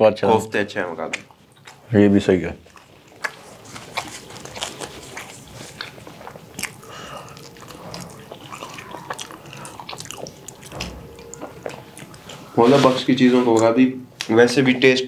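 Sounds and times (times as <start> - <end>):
people chewing with mouth smacks: 0.5 - 12.6
bread tearing: 3.1 - 10.8.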